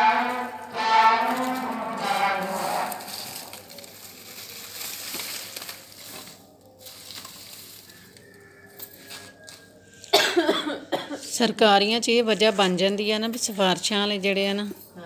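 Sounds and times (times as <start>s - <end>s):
dry straw rustling: 0.0s - 9.7s
fire crackling and sizzling: 0.3s - 9.6s.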